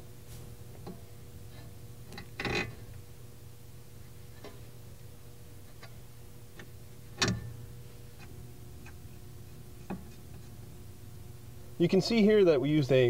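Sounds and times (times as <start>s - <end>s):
steady low hum: 0.0s - 13.0s
metallic clicks and knocks: 6.6s - 7.6s.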